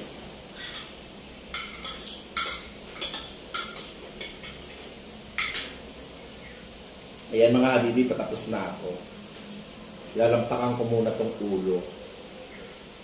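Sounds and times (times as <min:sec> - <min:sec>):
cutlery clinking on plates: 0:01.5 - 0:04.7, 0:05.4 - 0:05.8.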